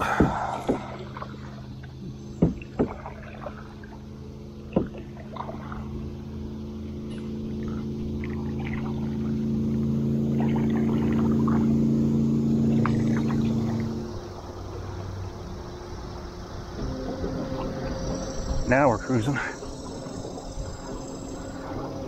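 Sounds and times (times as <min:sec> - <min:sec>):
sharp knocks: 0:02.4 - 0:03.1.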